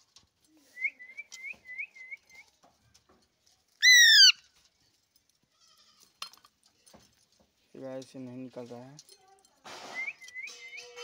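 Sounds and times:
high chirping whistles: 3.8 - 4.4
parakeet squawk: 3.8 - 4.4.

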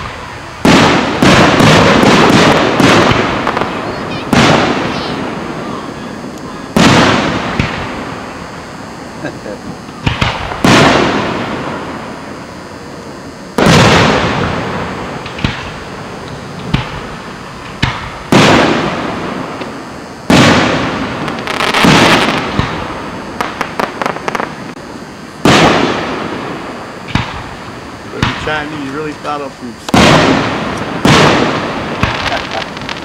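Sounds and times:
fireworks popping: 0.0 - 12.3, 13.5 - 24.8, 25.4 - 33.0
fireworks booming: 0.0 - 33.0
fireworks crackling: 0.0 - 33.0.

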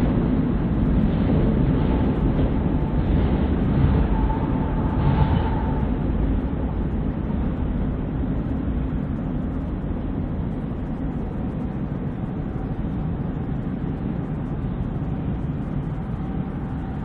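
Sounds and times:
freight train rumbling: 0.0 - 17.0
faint wheel squeal: 4.0 - 6.0.

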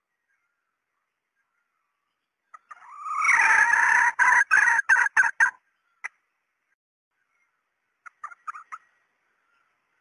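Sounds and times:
junglefowl calling and clucking: 2.5 - 6.2, 8.0 - 9.8.

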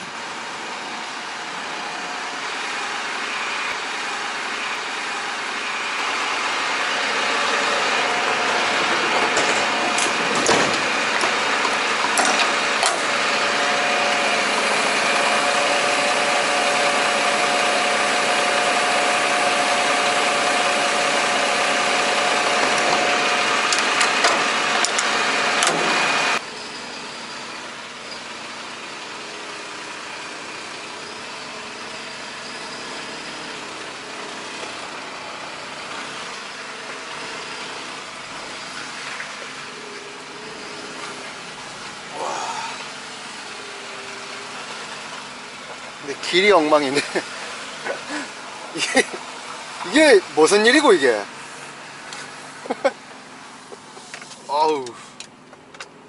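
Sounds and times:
truck engine running: 0.0 - 56.0
clicks and clanks: 8.8 - 13.1, 55.1 - 56.0.

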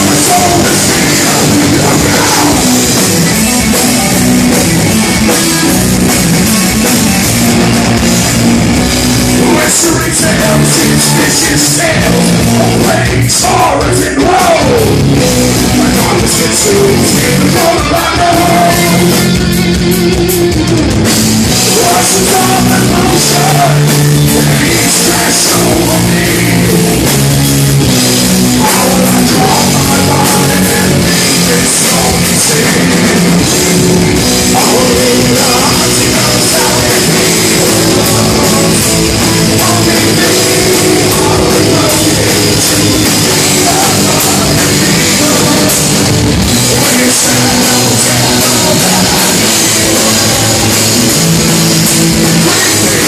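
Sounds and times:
person singing: 0.0 - 2.8, 9.4 - 20.1, 21.6 - 27.2, 28.5 - 33.8, 34.4 - 51.2, 52.2 - 53.0
live rock band playing: 0.0 - 53.0.

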